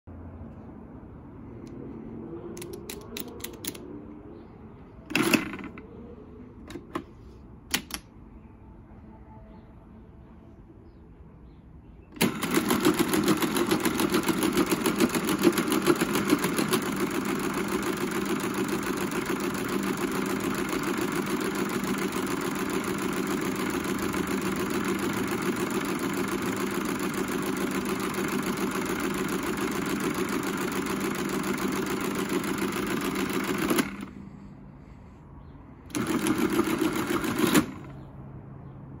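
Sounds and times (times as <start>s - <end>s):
calculator gear clatter: 2.6s - 3.8s, 5.1s - 5.9s, 12.2s - 34.1s, 35.9s - 38.0s
calculator motor hum: 5.1s - 5.8s, 12.2s - 34.4s, 35.9s - 38.0s.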